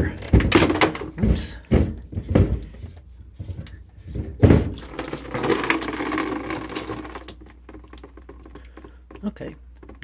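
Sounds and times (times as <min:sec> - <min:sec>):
plastic filter bowl knocking: 0:03.6 - 0:09.2
water pouring into plastic can: 0:04.7 - 0:10.0.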